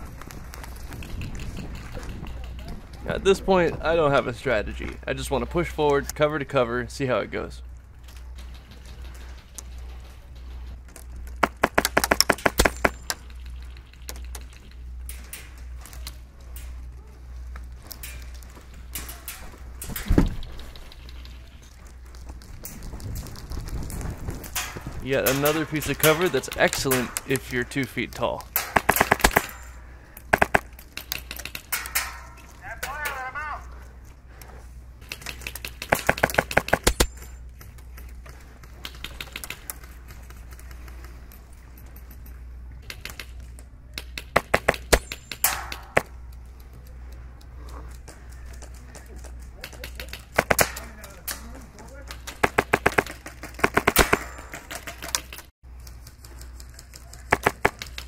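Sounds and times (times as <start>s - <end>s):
airsoft gun shots: 11.4s - 13.0s, 28.5s - 29.6s, 30.3s - 30.7s, 50.3s - 50.9s, 52.3s - 54.6s
airsoft rifle shots: 11.4s - 13.1s, 28.5s - 33.2s, 35.1s - 37.1s, 44.0s - 46.1s, 50.0s - 51.0s, 52.2s - 54.8s, 57.3s - 58.0s.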